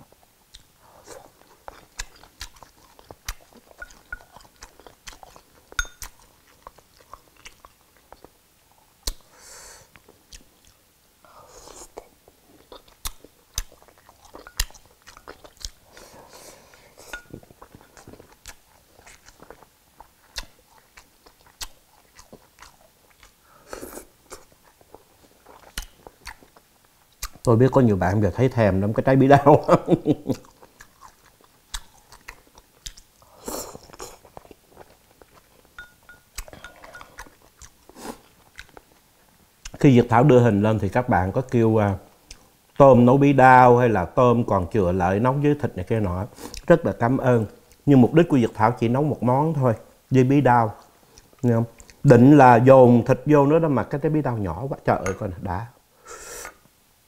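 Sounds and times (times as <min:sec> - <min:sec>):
person chewing: 0:00.5 - 0:10.8, 0:11.5 - 0:27.5, 0:30.2 - 0:39.8, 0:46.3 - 0:46.7, 0:50.8 - 0:52.0
chopsticks tapping dishes: 0:05.8 - 0:06.1, 0:17.1 - 0:17.4, 0:35.8 - 0:37.2, 0:55.0 - 0:55.3
sipping broth: 0:14.4 - 0:18.1.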